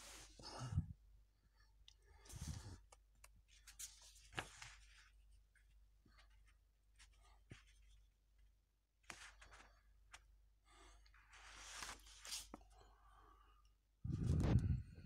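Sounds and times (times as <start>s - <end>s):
paper pages turning: 3.6s - 5.0s.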